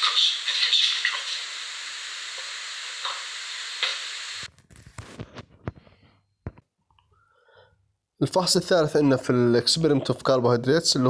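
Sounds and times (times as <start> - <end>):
steady hiss: 0.0 - 4.5.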